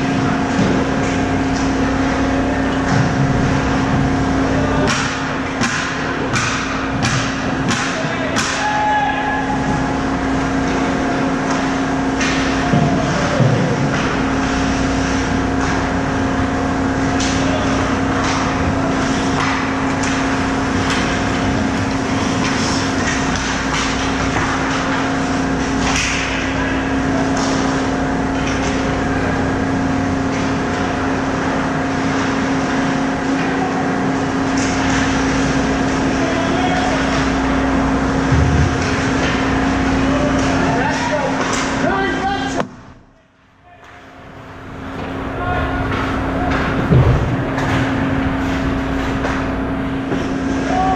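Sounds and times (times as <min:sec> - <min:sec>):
steady low hum: 0:00.0 - 0:50.9
sticks and puck clacking: 0:04.8 - 0:10.0, 0:10.6 - 0:15.9, 0:17.0 - 0:26.5, 0:34.5 - 0:35.2, 0:38.3 - 0:42.8, 0:43.4 - 0:50.9.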